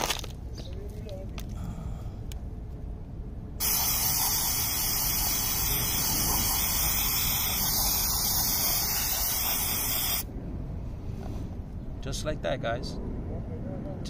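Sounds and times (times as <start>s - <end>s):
aerosol spray hiss: 3.6s - 10.3s.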